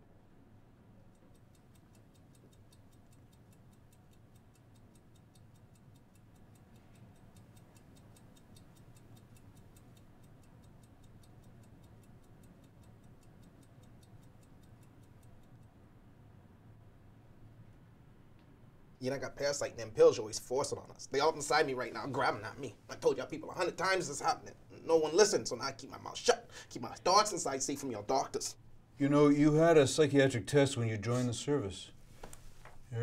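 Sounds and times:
low steady hum: 0.0s - 33.0s
wristwatch ticking: 1.1s - 15.9s, 19.2s - 28.6s.

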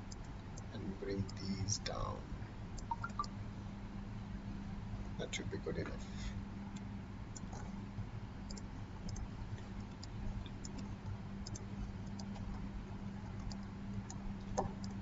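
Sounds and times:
computer mouse clicking: 0.0s - 1.4s, 2.8s - 3.3s, 8.5s - 12.6s, 13.2s - 15.0s
low electrical hum: 0.0s - 15.0s.

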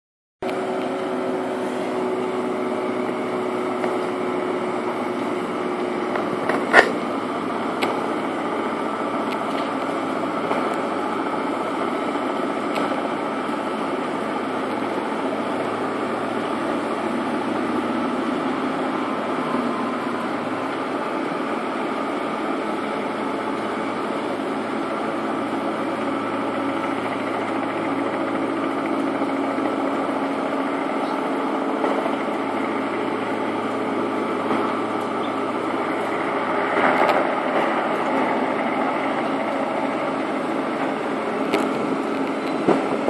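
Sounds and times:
diesel engine running: 0.4s - 43.0s
road milling machine grinding asphalt: 0.4s - 43.0s.

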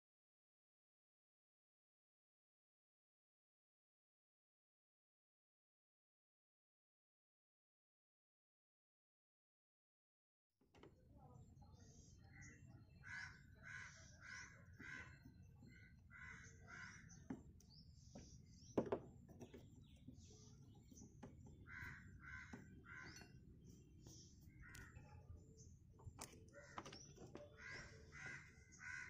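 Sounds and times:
crows cawing: 12.3s - 17.2s, 21.6s - 23.4s, 24.6s - 25.0s, 26.5s - 29.0s.

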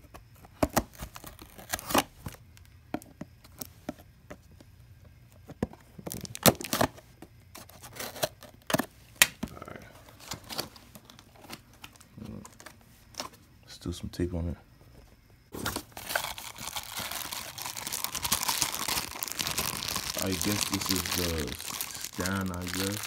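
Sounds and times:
packing tape snapping: 15.6s - 23.0s.

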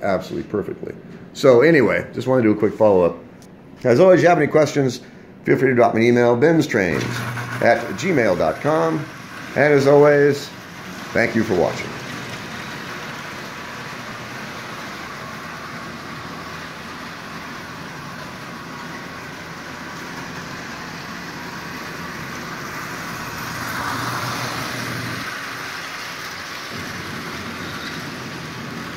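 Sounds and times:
toy train wheels rumbling on rails: 6.8s - 28.9s.

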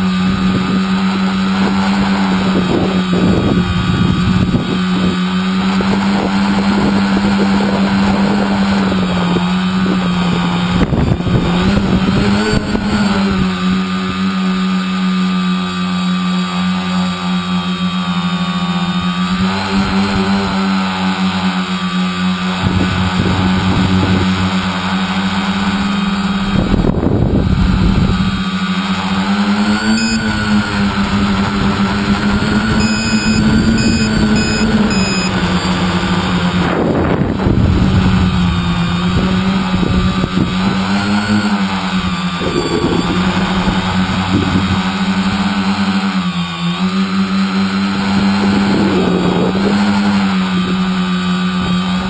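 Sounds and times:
wind rumbling on microphone: 0.0s - 14.2s, 22.4s - 29.1s, 30.2s - 46.0s, 47.9s - 52.0s
drone motors buzzing: 0.0s - 52.0s.

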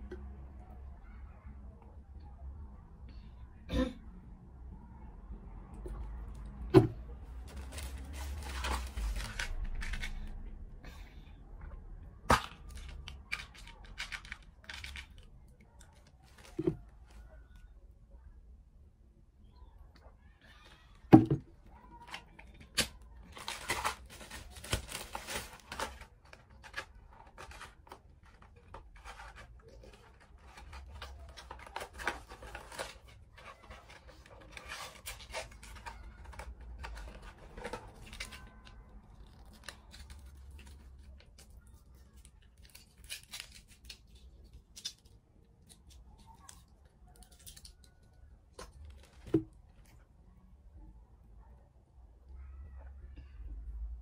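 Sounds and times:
packaging crinkling and tearing: 7.4s - 10.4s, 12.3s - 17.2s, 22.0s - 49.4s.

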